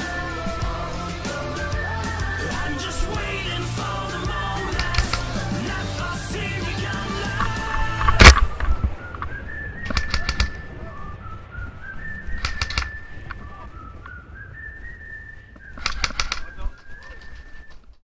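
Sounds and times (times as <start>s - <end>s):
whistle-like tone shifting pitch: 8.2s - 17.9s.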